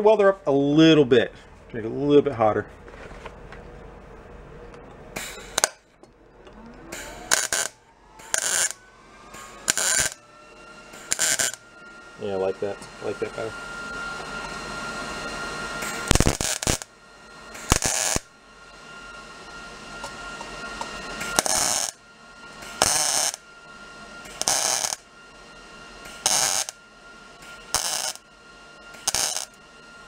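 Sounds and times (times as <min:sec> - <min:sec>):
welding arc crackle: 0:05.2 - 0:05.8, 0:06.9 - 0:08.8, 0:09.4 - 0:10.2, 0:11.0 - 0:11.6, 0:15.8 - 0:16.9, 0:17.6 - 0:18.3, 0:21.2 - 0:22.0, 0:22.6 - 0:23.4, 0:24.2 - 0:25.1, 0:26.0 - 0:26.8, 0:27.5 - 0:28.3, 0:28.9 - 0:29.6.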